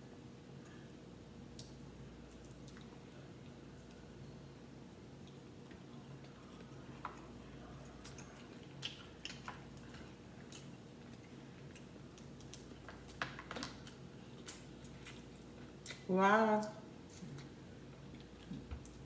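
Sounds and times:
faint low hum: 0.0 - 19.0
crab shells cracking: 8.1 - 16.0.

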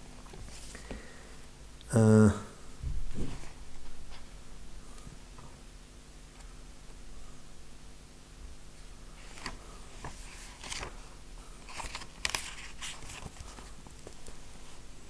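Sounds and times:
faint steady hum: 0.0 - 15.0
book pages rustling: 0.2 - 1.0, 9.2 - 14.9.

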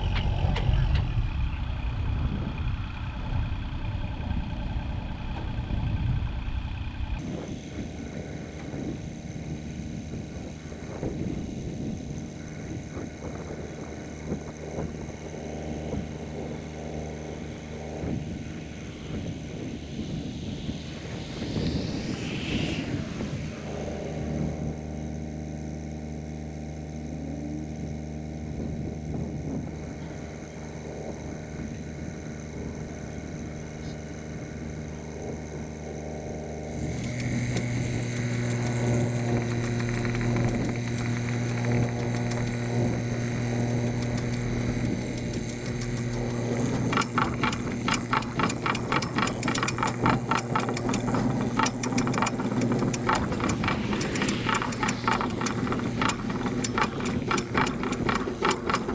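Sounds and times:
mini excavator engine running: 0.0 - 58.9
fast regular rattling clatter: 36.8 - 58.9.

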